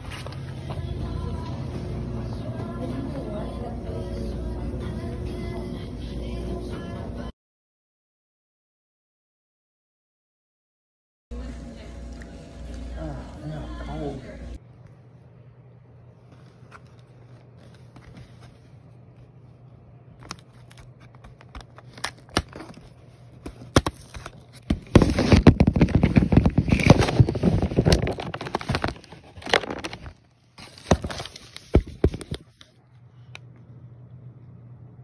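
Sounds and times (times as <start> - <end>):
dense crackling and crinkling: 16.0 - 32.8
cardboard tearing: 20.2 - 32.5.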